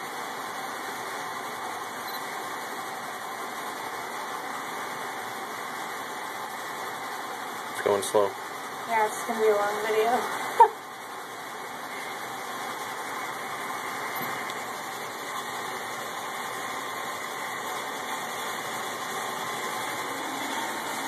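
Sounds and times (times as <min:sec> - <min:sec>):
funicular car running on track: 0:12.4 - 0:21.0.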